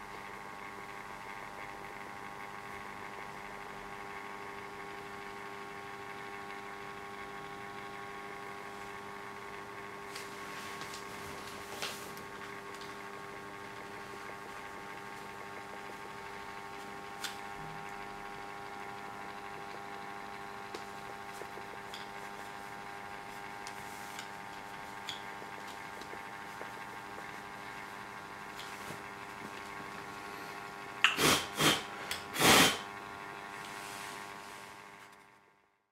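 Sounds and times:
electric motor hum: 0:00.0 - 0:35.6
loud noise bursts: 0:31.2 - 0:32.9.

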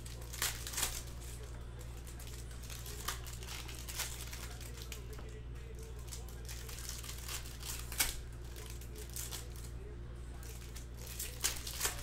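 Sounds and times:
foil wrapper crinkling and tearing: 0:00.0 - 0:12.0
steady low hum: 0:00.0 - 0:12.0.

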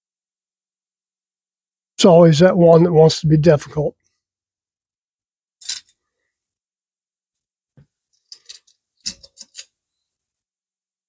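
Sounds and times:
metal parts clicking and clinking: 0:05.6 - 0:06.0, 0:08.2 - 0:09.7.

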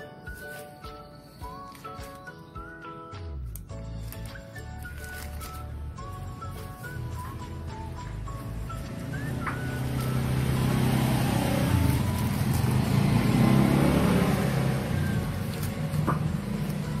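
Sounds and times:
vehicle engine passing by: 0:08.2 - 0:17.0.

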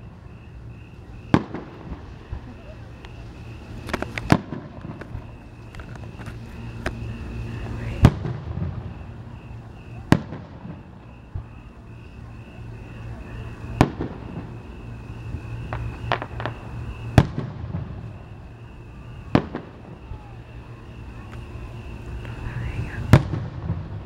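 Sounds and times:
fireworks booming: 0:00.0 - 0:24.0
small firework cracks: 0:01.3 - 0:07.1, 0:07.9 - 0:09.2, 0:09.9 - 0:11.5, 0:13.5 - 0:24.0.

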